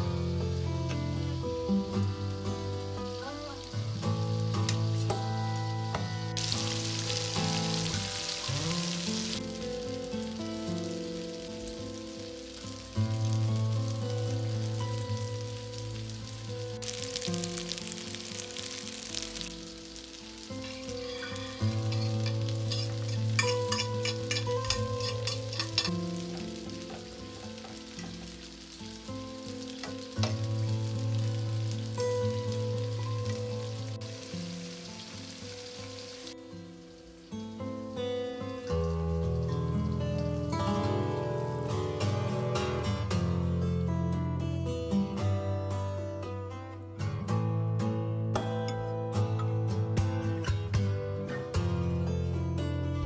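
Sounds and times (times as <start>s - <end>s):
background music: 0.0s - 47.0s
chicken frying in bubbling oil: 5.9s - 37.8s
utensil clicking against pan: 21.9s - 26.4s.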